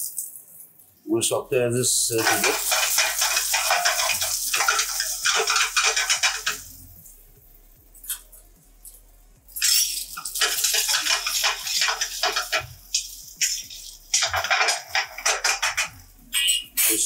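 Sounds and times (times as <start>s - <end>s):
chicken sizzling in a frying pan: 2.2s - 7.6s, 9.6s - 17.0s.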